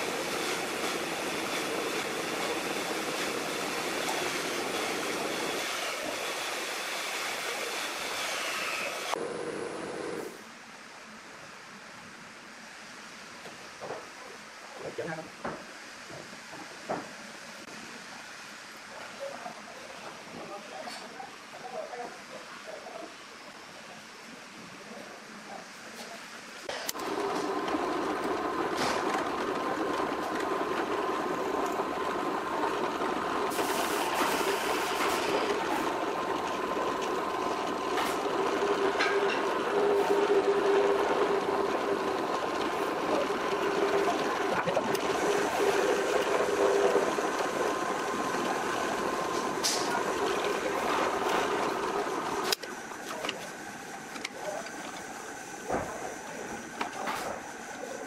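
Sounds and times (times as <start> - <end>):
electric drill boring into wood: 0.0 - 10.2.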